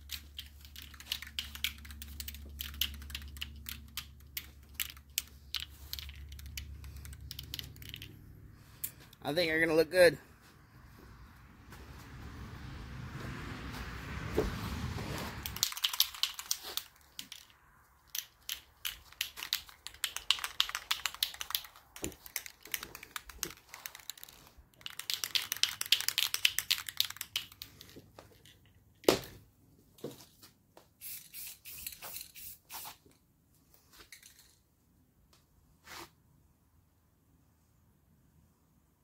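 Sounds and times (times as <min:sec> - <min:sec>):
spray can ball rattling: 0:00.0 - 0:08.2, 0:15.4 - 0:28.7, 0:31.0 - 0:33.0.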